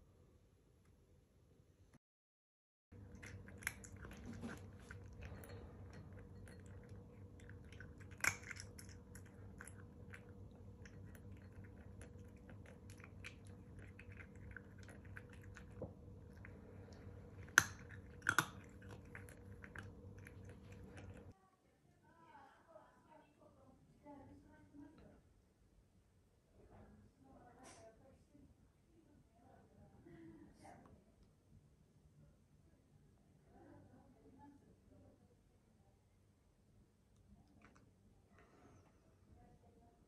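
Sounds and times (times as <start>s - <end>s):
cat crunching dry kibble: 3.0s - 21.3s.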